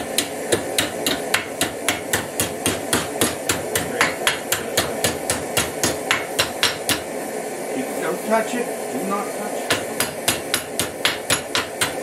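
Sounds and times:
hammer striking metal: 0.0s - 7.1s, 9.7s - 12.0s.

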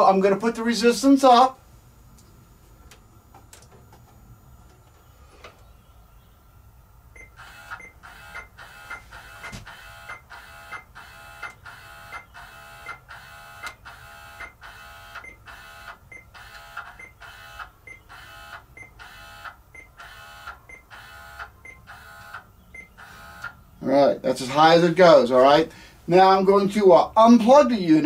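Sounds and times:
motor whirring: 7.4s - 22.4s, 23.0s - 23.6s.

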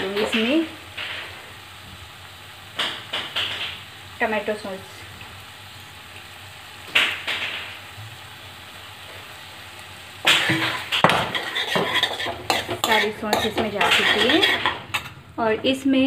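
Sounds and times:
spoon knocking on metal pan: 10.3s - 15.1s
spoon scraping and clinking pan: 10.3s - 15.2s.

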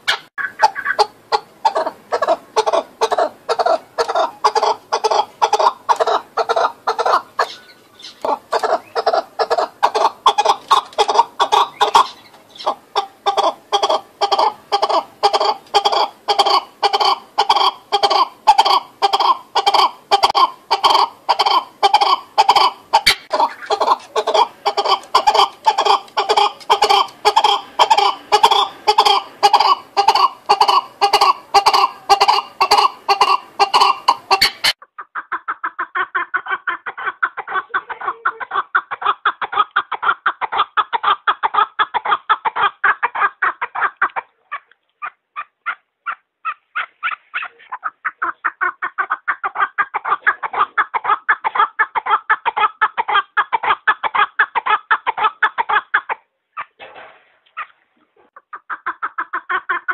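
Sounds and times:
partridges clucking calls: 0.0s - 56.9s.

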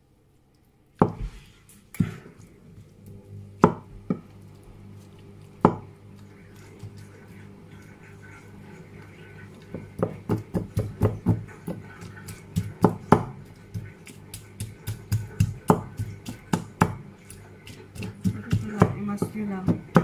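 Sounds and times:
masher knocking in bowl: 10.0s - 20.0s.

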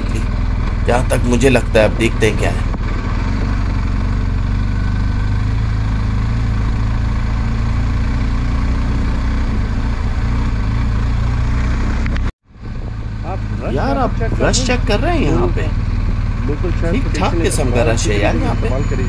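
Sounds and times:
motorcycle engine idling: 12.6s - 19.0s.

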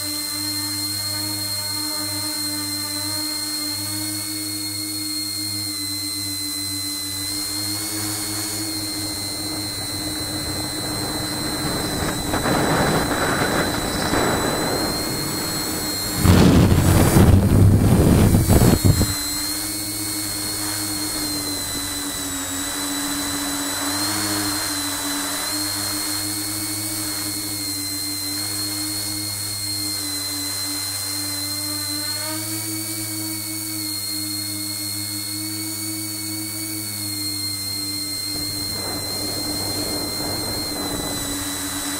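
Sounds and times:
electric motors whining: 0.0s - 41.9s
rushing noise: 9.6s - 19.5s.

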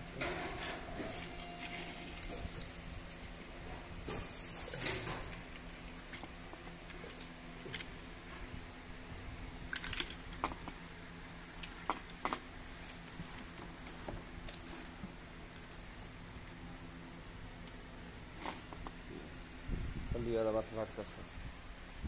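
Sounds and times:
plastic parts clicking: 5.5s - 7.9s, 9.7s - 10.8s, 11.5s - 14.6s.

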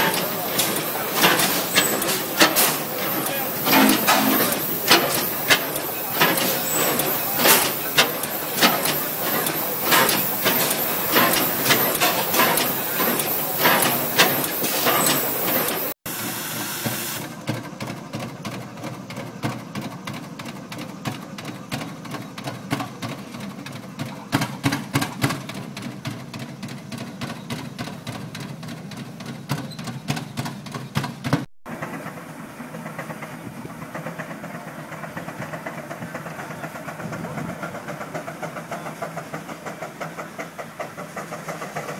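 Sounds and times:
loud hiss: 0.0s - 17.4s
vintage tractor engine running: 0.0s - 41.9s.

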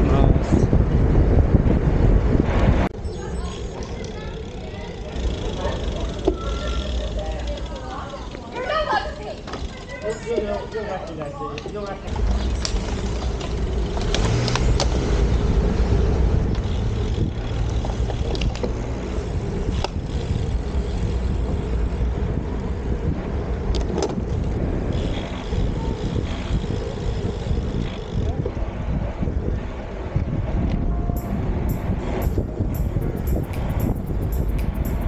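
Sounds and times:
wind on microphone: 0.0s - 4.3s, 12.1s - 35.0s
sharp clicks: 31.2s - 35.0s.

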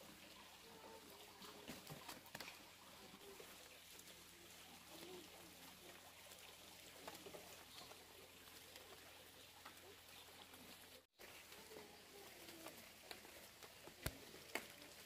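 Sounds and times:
ducks pecking and tearing leaves: 0.3s - 15.0s.

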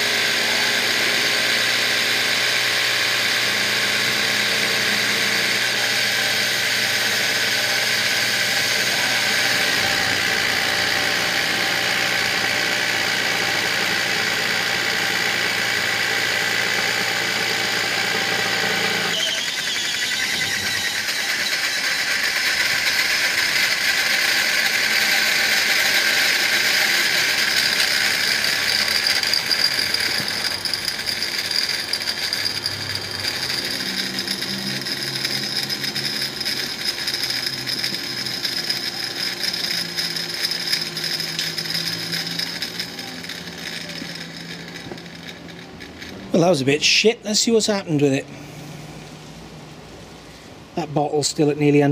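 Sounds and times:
motor rattling whir: 0.0s - 46.5s
air compressor humming: 0.0s - 50.8s.

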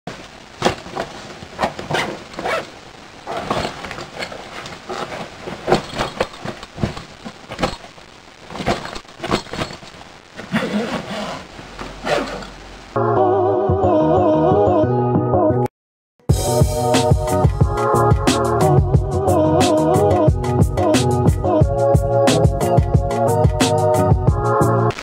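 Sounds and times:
fabric backpack rustling: 0.6s - 12.6s.

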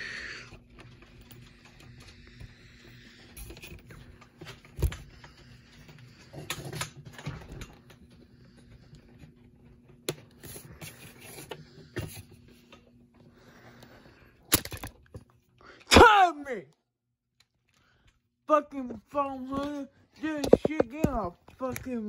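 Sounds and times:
faint steady hum: 0.0s - 22.0s
knocks and rustling of handling: 18.8s - 22.0s.

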